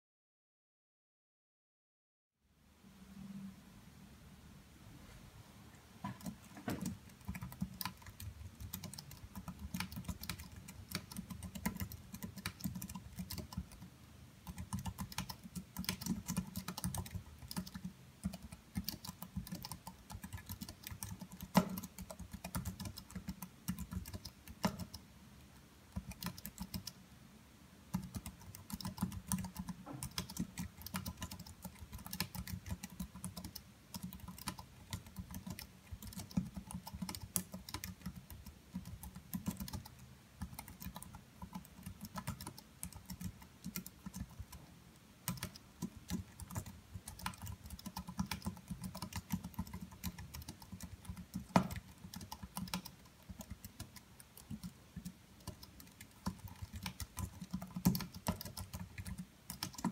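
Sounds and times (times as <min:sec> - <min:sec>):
fast typing on keyboard: 0:06.1 - 0:25.0, 0:25.9 - 0:27.0, 0:27.9 - 0:44.6, 0:45.2 - 0:59.9.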